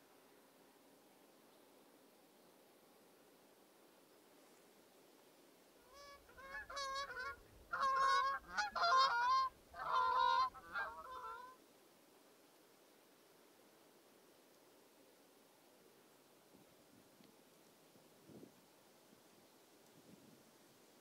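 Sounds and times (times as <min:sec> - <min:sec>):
geese honking: 0:05.9 - 0:11.6.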